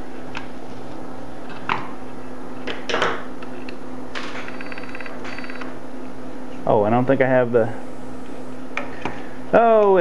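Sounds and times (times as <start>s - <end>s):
steady low hum: 0.0s - 10.0s
thin high whine: 6.6s - 8.8s
wire-feed drive whirring and ticking: 6.7s - 10.0s.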